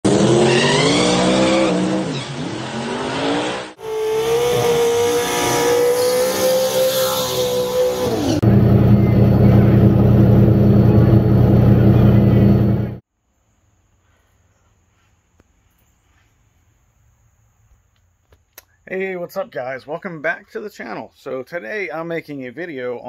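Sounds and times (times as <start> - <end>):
car engine revving: 0.0 - 13.0
engine steady high note: 3.8 - 13.0
low engine rumble: 8.4 - 13.0.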